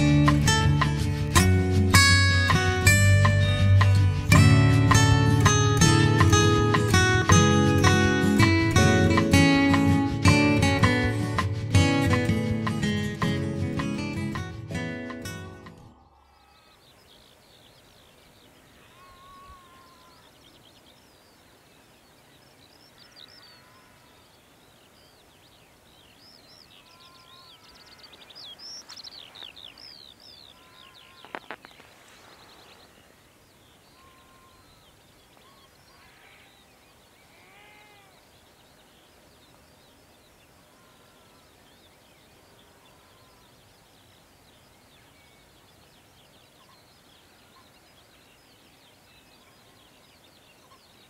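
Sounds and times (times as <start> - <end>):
small birds chirping and trilling: 15.5 - 51.0
lower arched bird call: 15.8 - 45.8.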